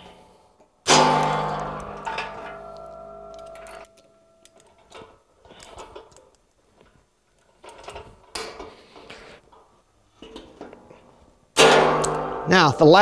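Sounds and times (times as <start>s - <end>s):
sharp metal clack: 0.9s - 5.1s, 11.6s - 12.8s
metal springs clinking and scraping: 0.9s - 12.6s.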